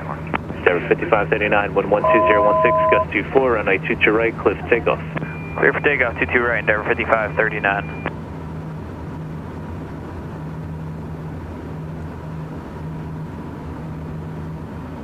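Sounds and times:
jet engines humming: 0:00.0 - 0:12.2.

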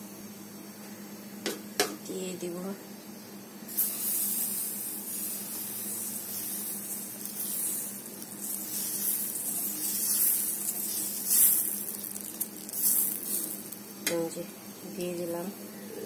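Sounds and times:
batter sizzling on frying pan: 0:03.7 - 0:15.5.

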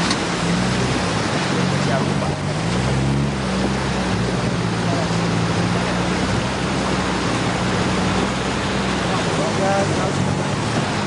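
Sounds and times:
car engine running: 0:00.0 - 0:11.0
water rushing and splashing: 0:00.0 - 0:11.0.

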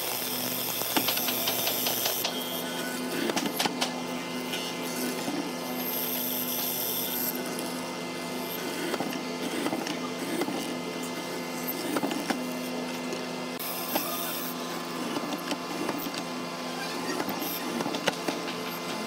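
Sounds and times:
mortiser motor hum: 0:00.0 - 0:19.0.

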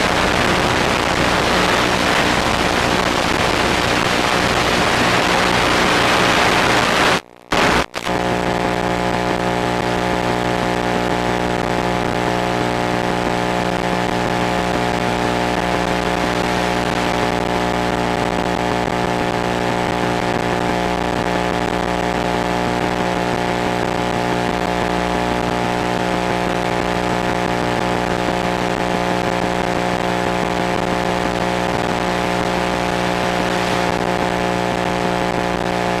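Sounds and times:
electrical buzz: 0:00.0 - 0:19.4, 0:28.7 - 0:36.0.

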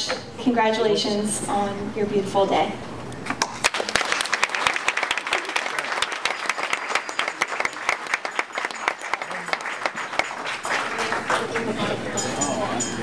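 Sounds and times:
crowd applauding: 0:03.5 - 0:12.6.

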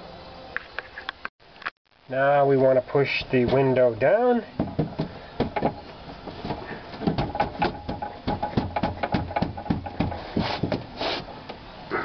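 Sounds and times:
glass knocking inside car door: 0:04.6 - 0:10.9.

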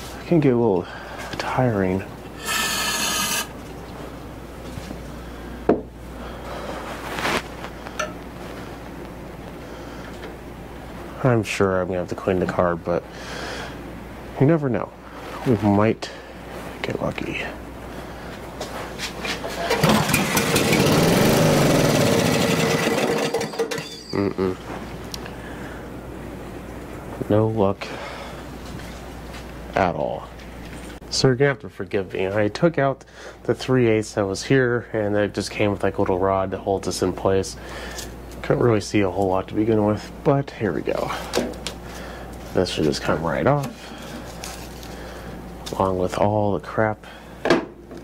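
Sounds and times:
engine turning over on recoil starter: 0:19.6 - 0:23.8.

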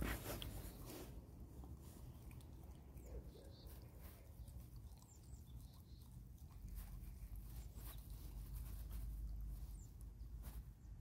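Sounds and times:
wet mouth chewing clicks: 0:04.3 - 0:07.4.

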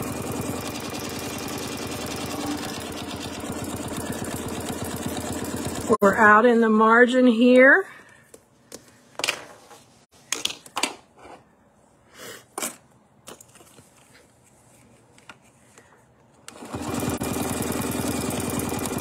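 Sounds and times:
sewing machine stitching: 0:00.0 - 0:06.0, 0:16.5 - 0:19.0.

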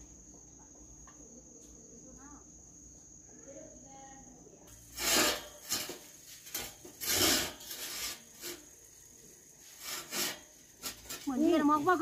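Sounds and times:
scraping along metal tube: 0:04.7 - 0:12.0.

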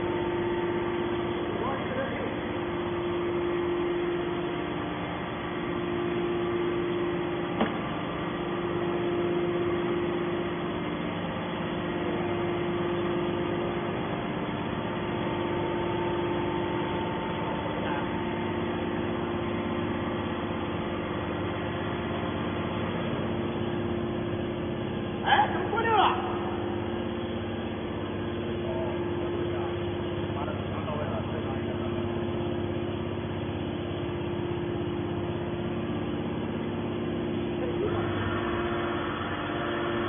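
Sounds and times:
hydraulic power unit humming: 0:00.0 - 0:40.0
steady machine tones: 0:00.0 - 0:40.0.

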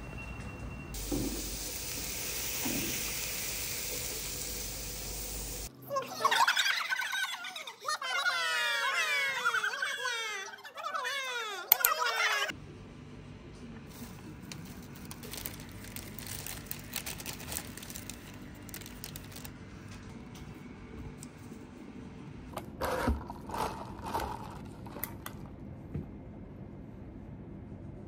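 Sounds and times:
crinkling rustling handling noise: 0:13.9 - 0:20.1.

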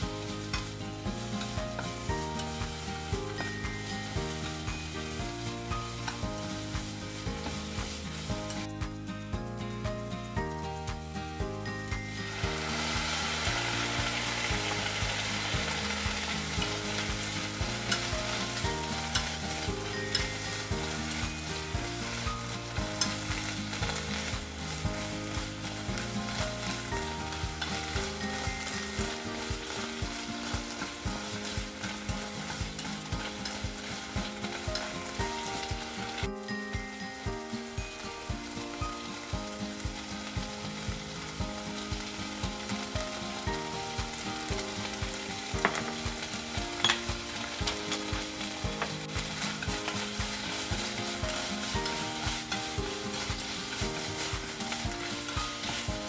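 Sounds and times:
pepper sizzling in a frying pan: 0:00.0 - 0:56.0
chopsticks scraping and tapping pan: 0:00.2 - 0:05.2, 0:05.8 - 0:09.0, 0:12.0 - 0:36.3, 0:44.6 - 0:56.0.

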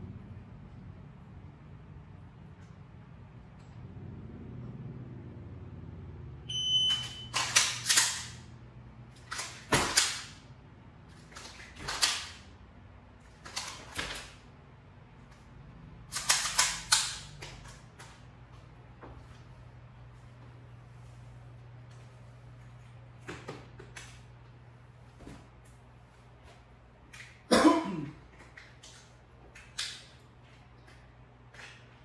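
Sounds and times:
electronic timer beep: 0:06.5 - 0:07.4.

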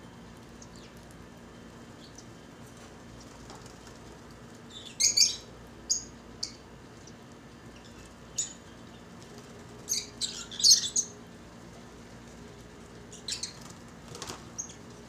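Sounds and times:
birds chirping and squawking: 0:04.7 - 0:06.6, 0:07.7 - 0:09.1, 0:09.8 - 0:11.2, 0:13.0 - 0:14.9.

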